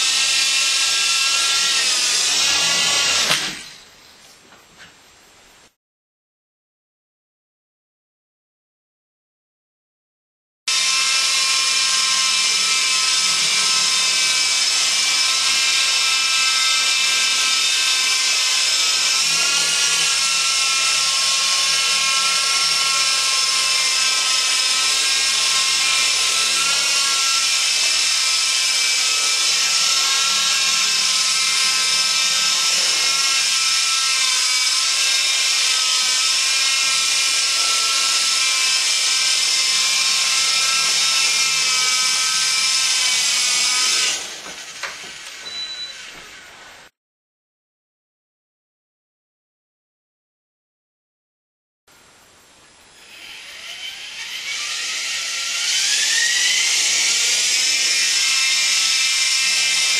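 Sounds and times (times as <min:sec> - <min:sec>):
rc helicopter rotor whine: 0:52.9 - 0:59.9.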